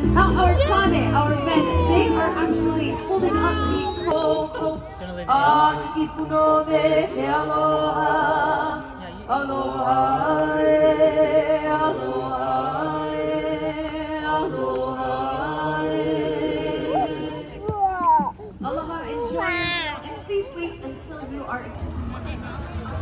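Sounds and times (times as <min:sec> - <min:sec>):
voices singing in harmony: 0:00.0 - 0:17.6.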